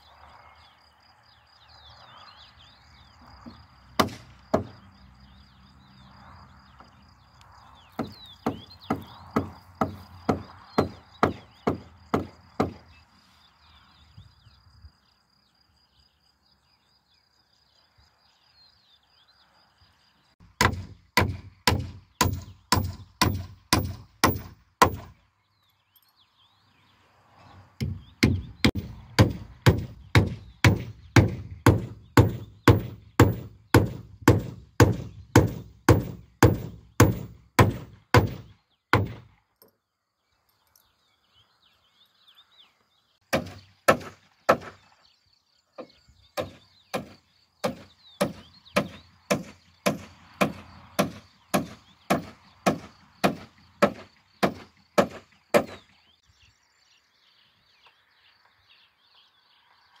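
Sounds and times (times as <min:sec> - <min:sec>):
hammer striking nails into wood: 0:04.0 - 0:04.8, 0:08.0 - 0:12.8, 0:20.4 - 0:25.2, 0:27.8 - 0:39.3, 0:43.3 - 0:44.8, 0:46.4 - 0:55.9.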